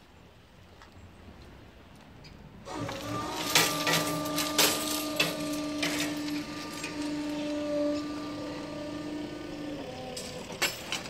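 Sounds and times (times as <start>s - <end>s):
steady humming tone: 2.7s - 11.0s
metallic clanks: 3.0s - 8.2s, 10.1s - 11.0s.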